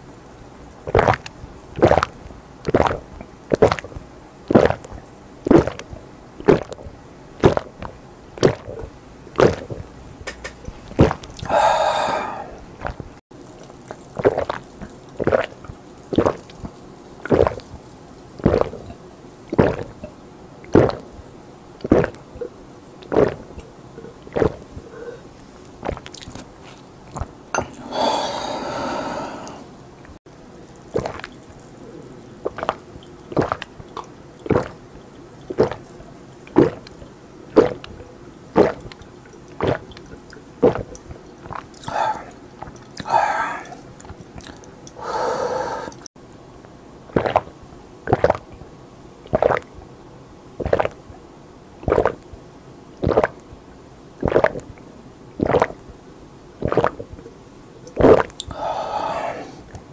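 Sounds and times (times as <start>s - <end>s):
person gulping drink: 0.9s - 17.8s, 18.4s - 21.2s, 21.8s - 29.8s, 30.7s - 46.1s, 47.1s - 47.5s, 48.1s - 48.5s, 49.3s - 49.7s, 50.6s - 51.0s, 51.8s - 52.3s, 53.0s - 53.4s, 54.2s - 54.7s, 55.4s - 55.8s, 56.6s - 57.3s, 57.9s - 59.9s
noisy breaths: 11.4s - 12.7s, 24.8s - 25.4s, 27.6s - 29.8s, 41.8s - 42.4s, 43.0s - 43.9s, 45.0s - 46.1s, 58.5s - 59.8s.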